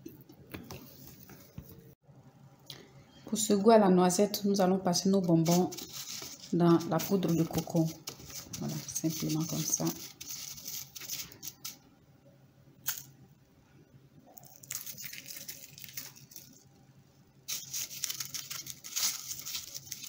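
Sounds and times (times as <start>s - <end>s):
scratchy rustle of grated coconut: 5.3s - 11.8s, 17.5s - 20.0s.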